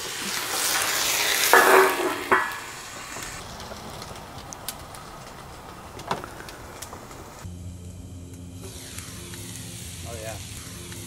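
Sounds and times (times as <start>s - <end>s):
water sizzling in a hot wok: 0.0s - 4.7s, 8.5s - 11.0s
small pops: 0.6s - 7.5s.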